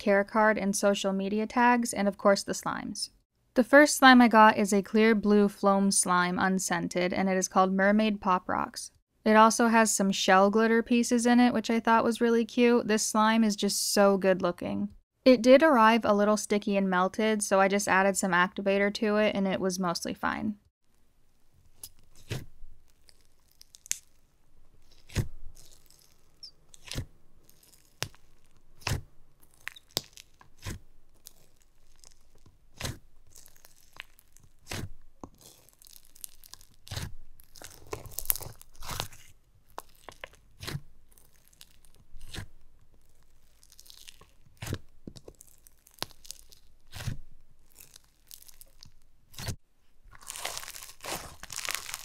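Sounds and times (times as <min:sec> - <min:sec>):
slime crackling crunch: 0:21.6 - 0:52.0
slime beads popping: 0:21.8 - 0:52.0.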